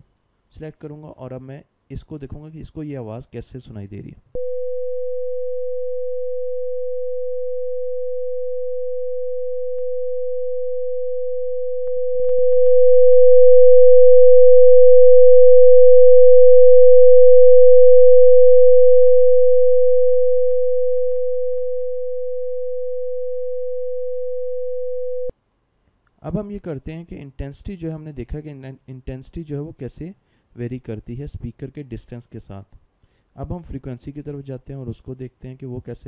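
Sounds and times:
steady sine tone: 4.4 - 25.3.

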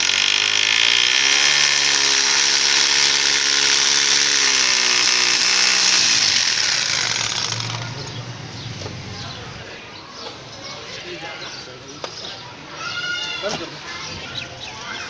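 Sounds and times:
electric drill boring into brick: 0.0 - 8.1.

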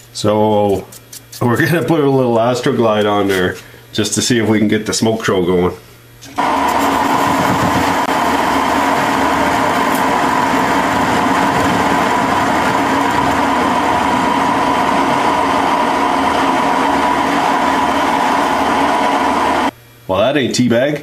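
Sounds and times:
constant whine: 6.2 - 19.8
metal lathe cutting steel: 6.4 - 19.7.

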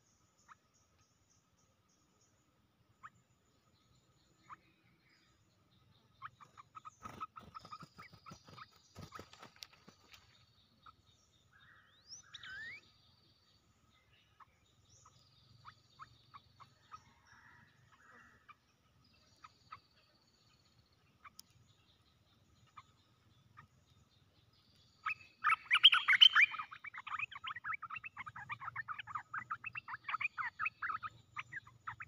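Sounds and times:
bird calling: 6.0 - 9.7, 10.8 - 13.0, 21.2 - 32.0.

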